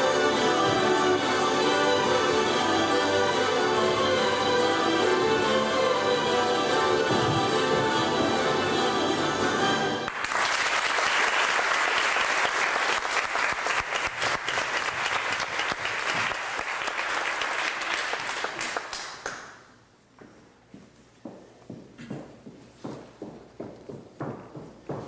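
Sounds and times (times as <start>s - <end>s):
music: 0.0s - 10.1s
audience applauding: 10.0s - 19.6s.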